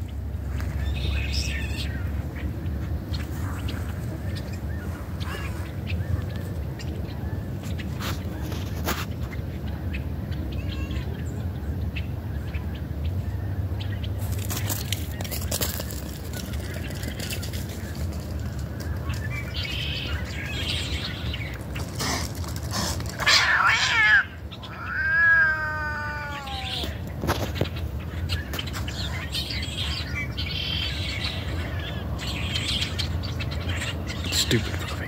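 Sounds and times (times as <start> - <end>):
cat meowing: 23.2 - 27.0.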